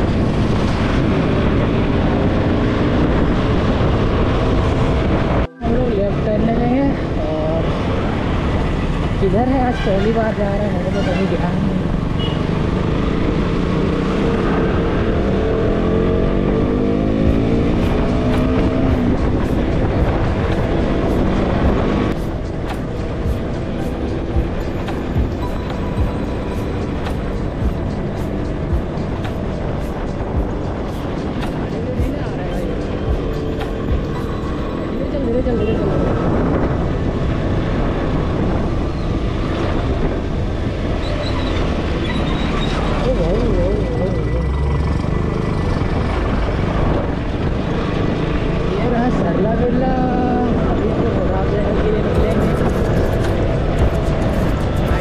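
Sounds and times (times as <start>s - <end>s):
motorcycle engine accelerating: 0.0s - 9.4s, 11.6s - 55.0s
wind rushing over microphone: 0.0s - 44.3s, 44.9s - 55.0s
motorcycle engine running: 50.1s - 55.0s.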